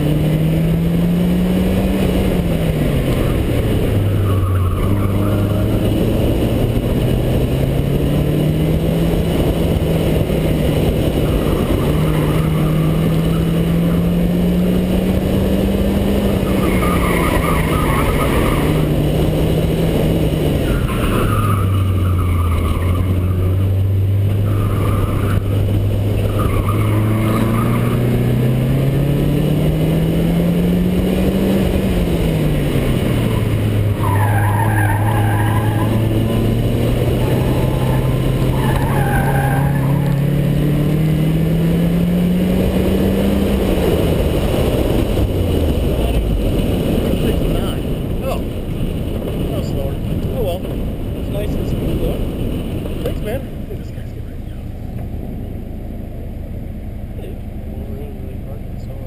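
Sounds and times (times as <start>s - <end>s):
car engine revving: 0.0s - 59.0s
tire squeals: 2.7s - 6.9s, 10.8s - 14.1s, 16.2s - 19.5s, 20.4s - 29.0s, 32.8s - 41.0s.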